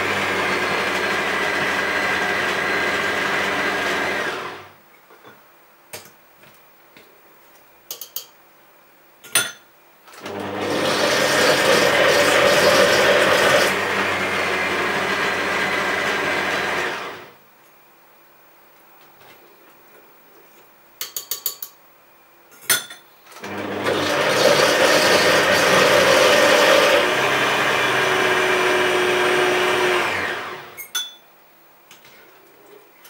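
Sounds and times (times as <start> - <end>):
blender motor running: 0.0 - 4.7, 10.2 - 17.4, 23.4 - 30.8.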